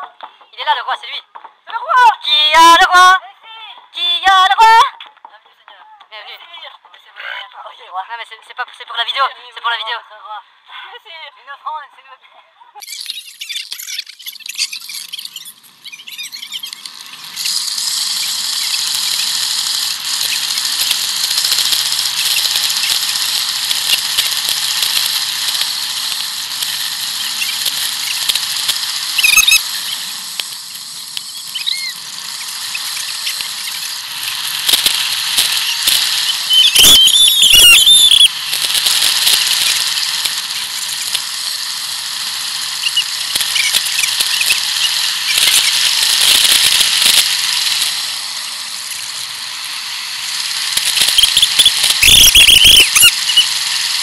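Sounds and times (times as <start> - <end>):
bicycle brakes squealing: 12.8 - 30.2, 30.9 - 41.5, 42.3 - 48.1, 50.4 - 54.0
bicycle tyre noise: 12.8 - 54.0.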